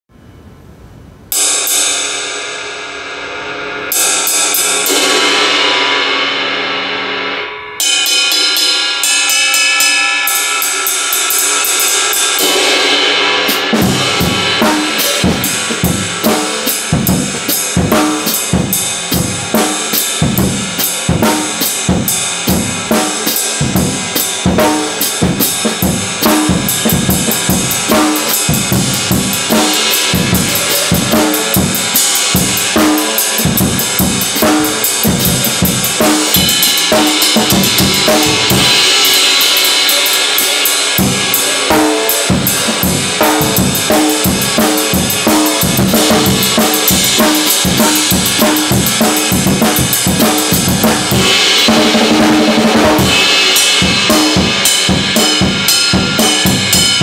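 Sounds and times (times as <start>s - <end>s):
ride cymbal ringing: 7.8s - 57.0s
bass drum and snare groove: 13.5s - 57.0s.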